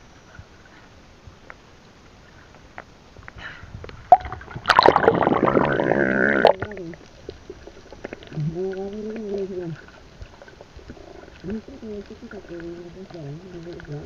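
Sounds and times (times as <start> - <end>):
water splashing and gurgling: 0.2 - 14.0
loud underwater bubbling: 4.0 - 8.8.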